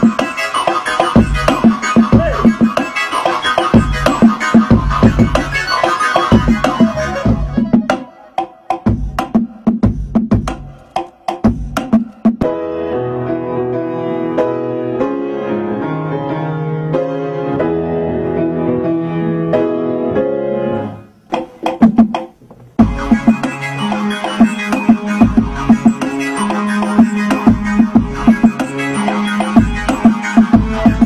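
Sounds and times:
r and b keyboard beat: 0:00.0 - 0:12.9, 0:21.3 - 0:31.0
piano playing held chords: 0:12.4 - 0:21.2, 0:22.8 - 0:31.0.

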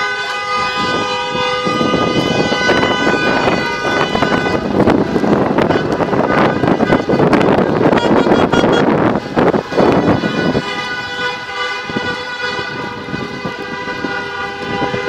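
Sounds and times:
wind rushing on microphone: 0:00.0 - 0:15.0.

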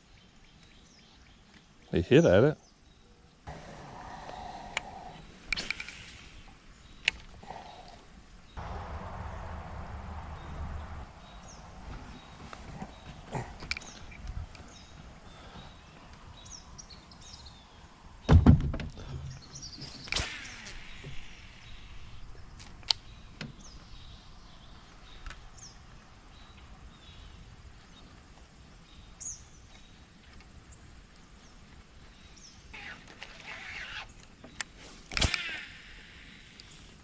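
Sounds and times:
birds chirping: 0:00.0 - 0:18.4, 0:19.0 - 0:28.2
sharp clicks: 0:04.2 - 0:06.3, 0:34.5 - 0:36.7
short rushing noise: 0:08.6 - 0:13.0, 0:19.8 - 0:22.2
heavy low thump: 0:18.3 - 0:19.1.

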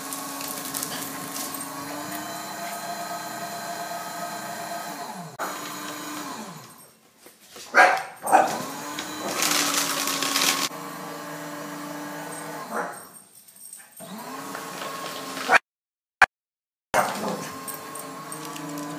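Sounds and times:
paper shredder motor: 0:00.0 - 0:06.9, 0:08.4 - 0:12.8, 0:14.0 - 0:15.6, 0:17.0 - 0:18.9
small dog barking: 0:07.7 - 0:08.7, 0:12.7 - 0:13.1, 0:17.0 - 0:17.6.

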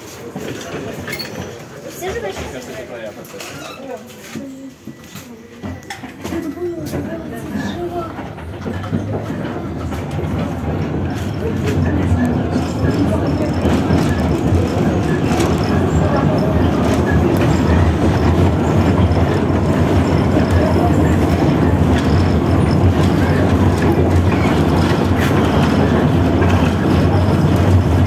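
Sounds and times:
tram wheels rumbling on rails: 0:00.0 - 0:28.0.

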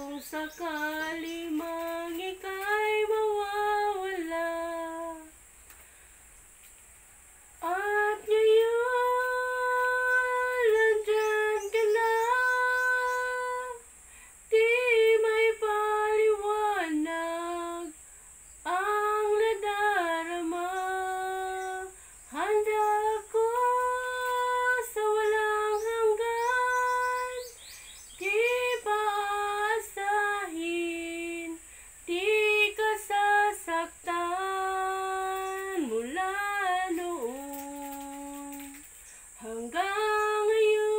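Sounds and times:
woman singing solo: 0:07.6 - 0:13.8
singer breathing: 0:14.0 - 0:14.5, 0:31.6 - 0:32.0.

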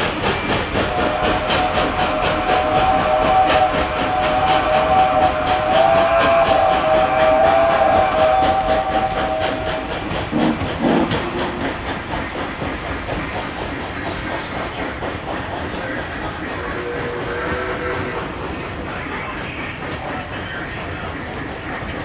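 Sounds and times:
model train wheels clicking on track: 0:00.0 - 0:22.0
two-note train whistle: 0:00.8 - 0:10.1.

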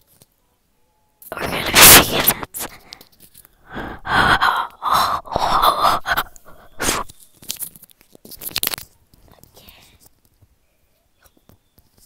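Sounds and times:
breathy puffs and gasps: 0:01.4 - 0:07.1
mouth clicks: 0:03.9 - 0:07.1.

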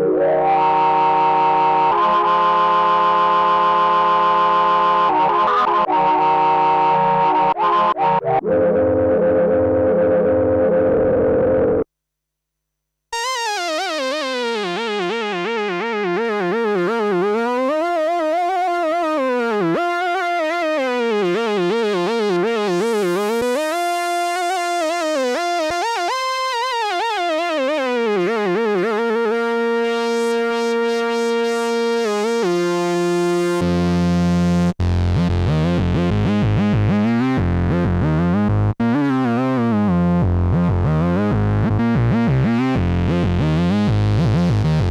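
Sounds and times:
synthesizer lead with vibrato: 0:13.2 - 0:34.7.

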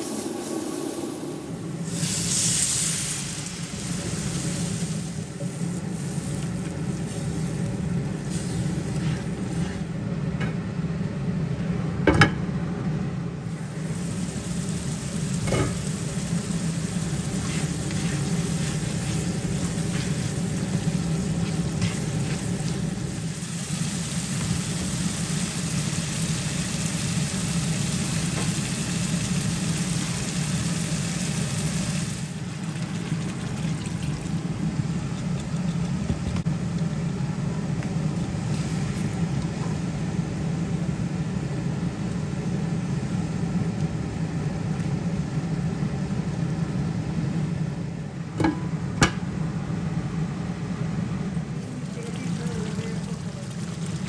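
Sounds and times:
low hum: 0:00.0 - 0:10.0
gravy sizzling in a frying pan: 0:01.9 - 0:09.9, 0:13.5 - 0:36.3, 0:51.5 - 0:54.0
spatula scraping a pan: 0:17.4 - 0:20.8.

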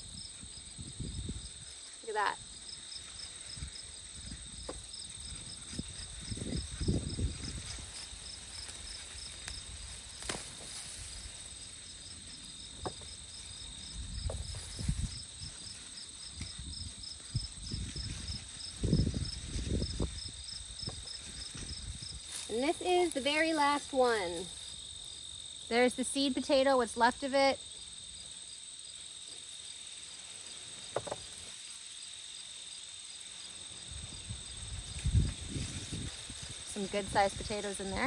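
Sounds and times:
crickets chirping: 0:00.0 - 0:38.0
digging in garden soil: 0:03.1 - 0:24.9.

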